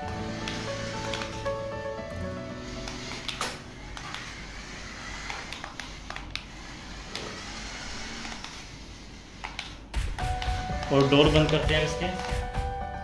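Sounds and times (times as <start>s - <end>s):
toy car electric motor: 0.1s - 1.5s, 2.6s - 9.8s.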